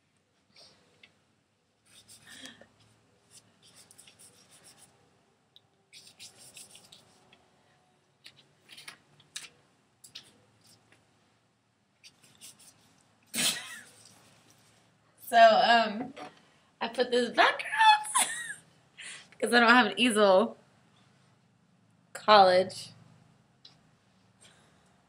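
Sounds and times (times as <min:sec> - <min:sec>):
paint rubbing on paper: 0:01.8 - 0:02.4, 0:03.2 - 0:04.9, 0:05.9 - 0:07.3, 0:12.0 - 0:12.9.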